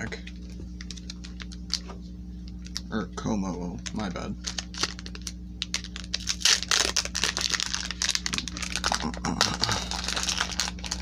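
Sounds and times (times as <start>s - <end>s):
foil wrapper tearing and crinkling: 4.4s - 11.0s.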